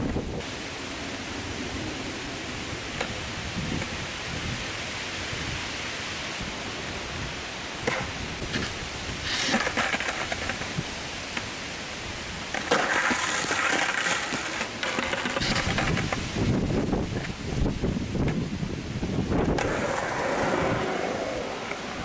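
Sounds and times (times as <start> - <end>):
wind on microphone: 0.0 - 0.5, 1.4 - 11.0, 15.4 - 22.0
trees rustling: 0.0 - 22.0.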